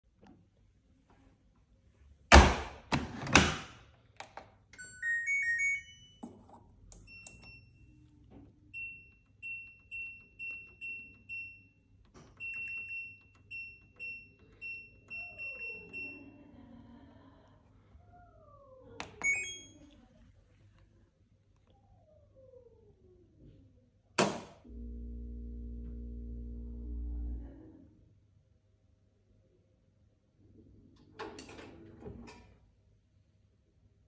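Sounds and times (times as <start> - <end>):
washing machine door thudding shut: 2.3 - 3.7
short high beeps: 4.8 - 6.2, 19.2 - 19.8.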